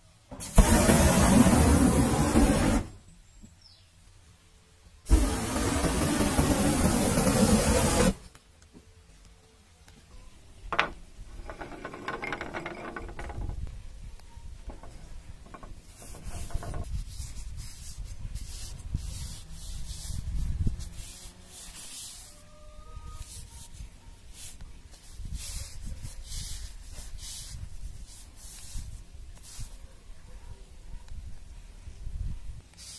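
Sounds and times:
gas torch flame hissing: 0:00.3 - 0:03.0, 0:05.1 - 0:08.4
paper towel wiping wooden handle: 0:00.6 - 0:02.9, 0:05.1 - 0:08.2, 0:15.9 - 0:29.9.

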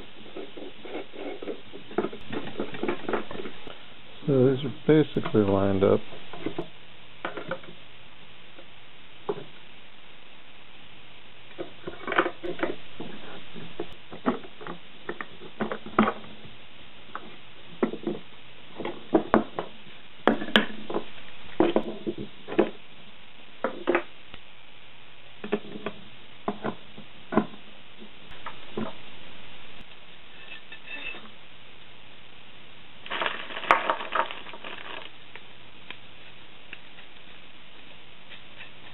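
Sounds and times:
tools and parts knocking on workbench: 0:18.8 - 0:22.8, 0:25.4 - 0:27.6.

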